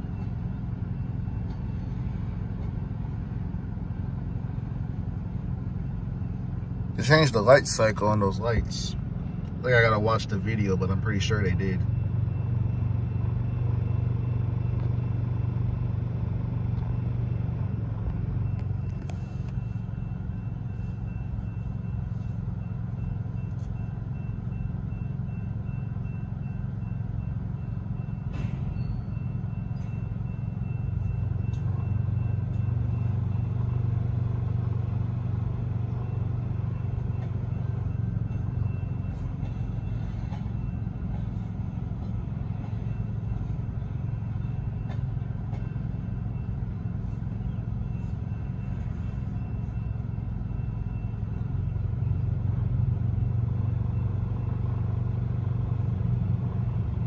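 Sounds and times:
freight train rumbling: 0.0 - 57.0.

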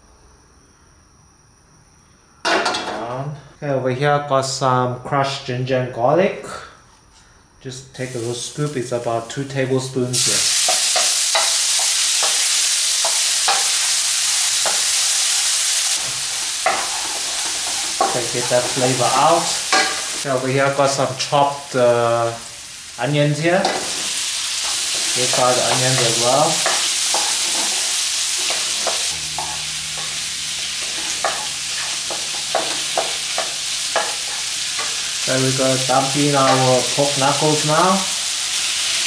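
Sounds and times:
garlic sizzling in hot oil: 8.0 - 39.0.

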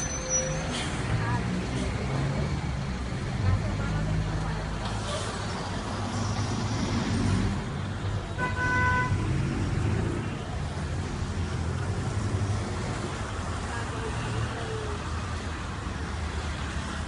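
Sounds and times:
traffic rumble: 0.0 - 17.0
car horn toot: 8.4 - 9.2.

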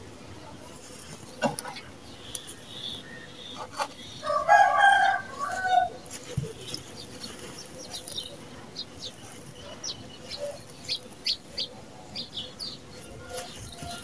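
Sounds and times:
rooster crowing: 4.2 - 6.0.

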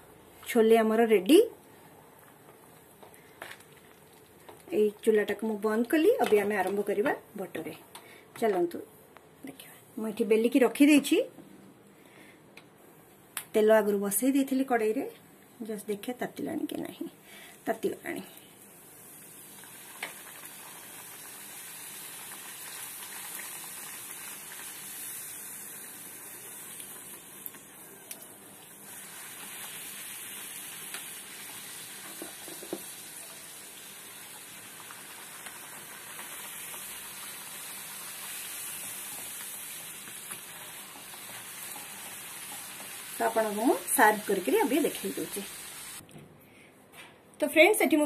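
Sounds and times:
dough deep-frying in oil: 18.8 - 46.0.

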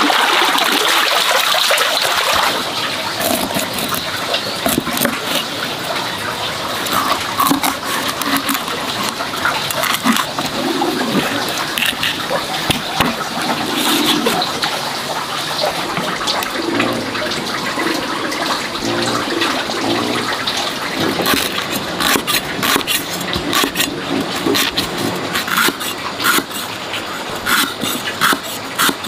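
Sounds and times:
running water: 0.0 - 29.0
cleaver chopping on wooden block: 21.2 - 26.6, 27.4 - 29.0.

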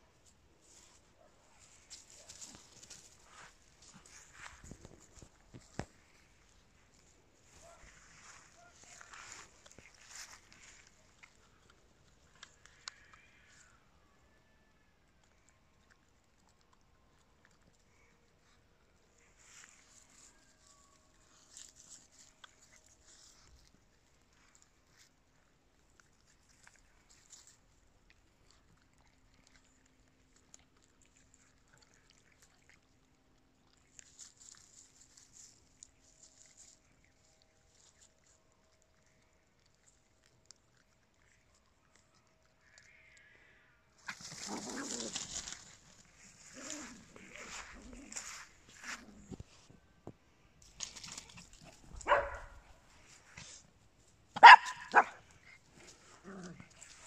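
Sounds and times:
small dog barking: 7.6 - 9.3, 52.0 - 52.7, 54.4 - 55.2.

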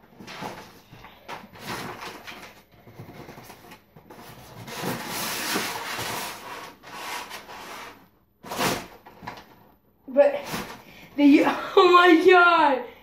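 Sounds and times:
packing inserts scraping cardboard: 1.6 - 9.4.

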